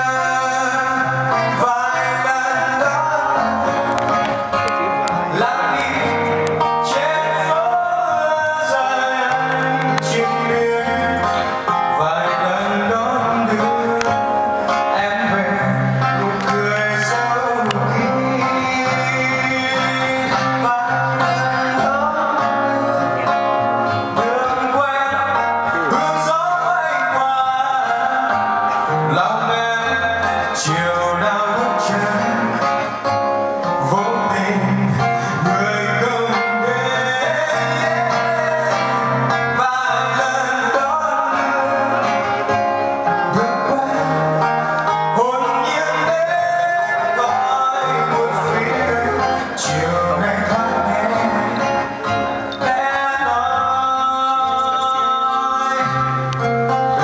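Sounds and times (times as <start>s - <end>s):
guitar accompaniment: 0.0s - 57.0s
person singing into a microphone: 0.0s - 57.0s.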